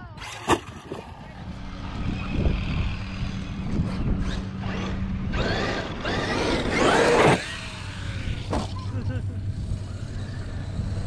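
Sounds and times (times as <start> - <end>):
electric motor whining: 0.2 - 8.9.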